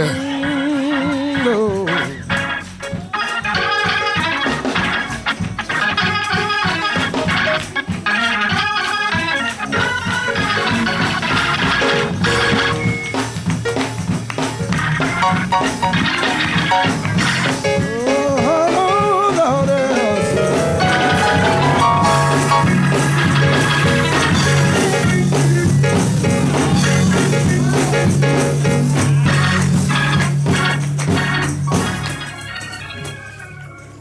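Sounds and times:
drums: 0.0s - 34.0s
organ: 0.0s - 34.0s
deep bass line: 19.5s - 30.7s.

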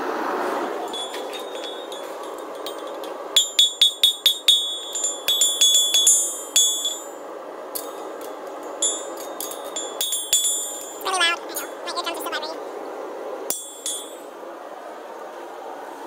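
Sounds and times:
hammer striking horseshoe on anvil: 0.9s - 7.1s, 8.8s - 11.0s, 13.5s - 14.2s.

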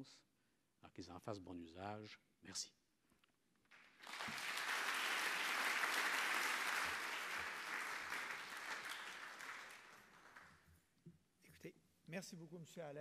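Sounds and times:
audience applauding: 3.7s - 10.6s.

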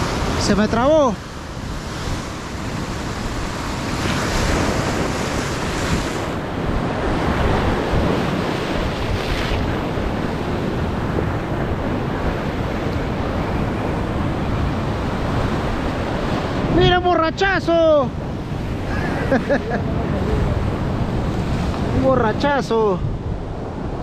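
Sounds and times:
wind buffeting microphone: 0.0s - 17.0s, 17.8s - 24.0s
ocean surf washing ashore: 0.0s - 24.0s.

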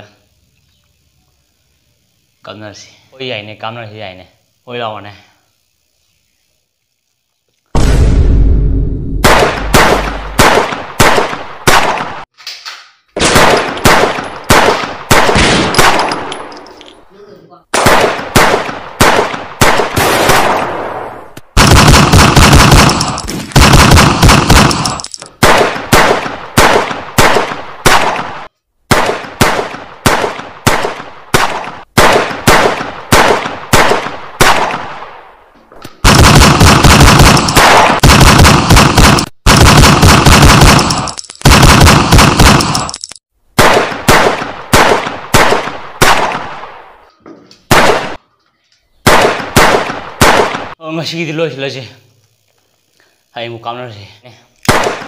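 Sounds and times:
single gunshots with ringing decay: 9.2s - 12.2s, 13.2s - 16.5s, 17.7s - 35.2s, 36.1s - 42.7s, 43.6s - 47.0s, 47.7s - 48.2s, 49.0s - 50.8s, 54.7s - 55.0s
rapid automatic gunfire: 21.6s - 28.2s, 36.0s - 43.0s.

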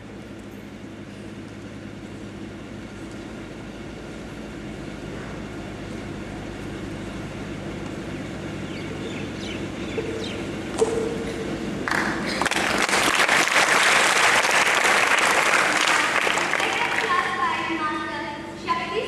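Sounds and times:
low rumble of a large hall: 0.0s - 19.0s
audience applause: 11.8s - 17.7s.

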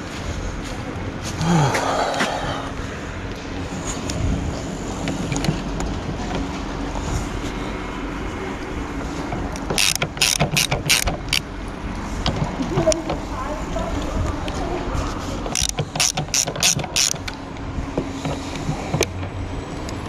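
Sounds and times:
sharp clicks: 9.4s - 11.5s, 15.5s - 17.4s
screwdriver turning screws: 9.5s - 11.4s, 15.5s - 17.4s.

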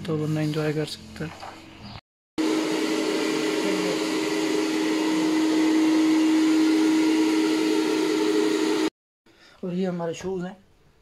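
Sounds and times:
hair dryer running: 2.4s - 9.0s.

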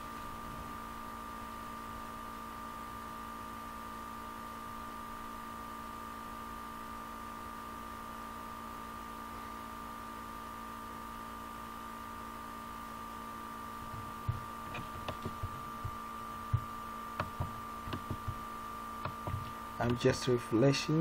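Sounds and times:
electrical hum with tones: 0.0s - 21.0s
soft knocks: 13.8s - 18.4s, 19.0s - 20.0s
sharp clicks: 17.2s - 18.4s.

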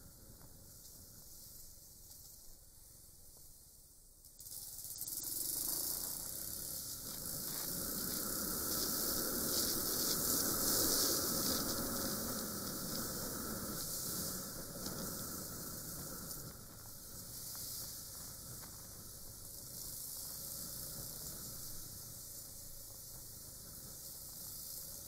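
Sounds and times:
wind rush and road noise: 6.6s - 25.0s.

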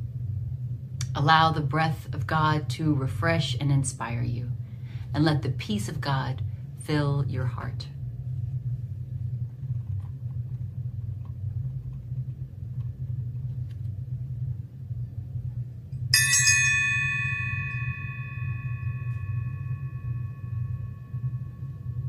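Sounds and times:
steady low hum: 0.0s - 22.0s
small brass bell ringing: 16.1s - 21.6s.

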